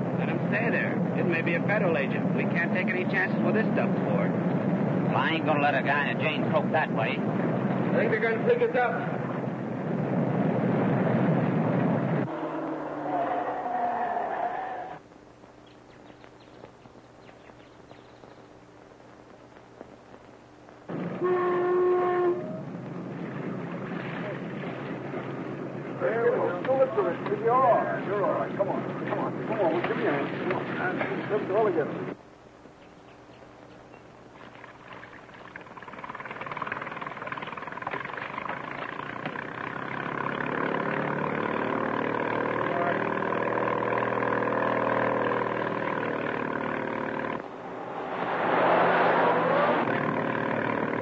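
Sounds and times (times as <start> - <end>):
horn blown: 12.3 - 13.6, 21.0 - 22.7
old film crackle: 15.0 - 21.4
motorboat engine drone: 20.4 - 32.2, 33.8 - 51.0.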